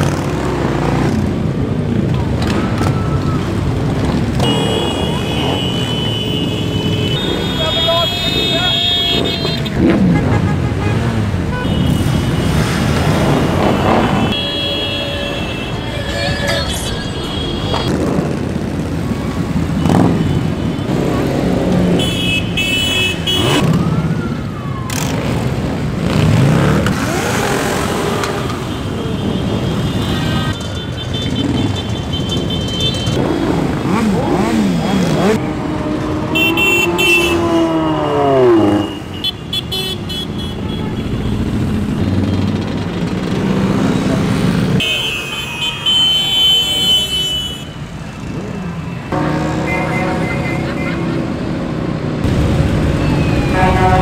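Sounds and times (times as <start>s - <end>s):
motorcycles revving past: 9.2s - 14.4s, 33.1s - 39.1s.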